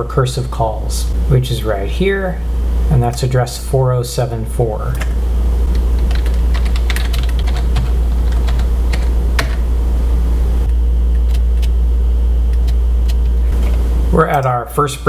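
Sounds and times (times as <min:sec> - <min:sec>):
steady low hum: 0:00.0 - 0:15.0
typing on computer keyboard: 0:05.8 - 0:09.6.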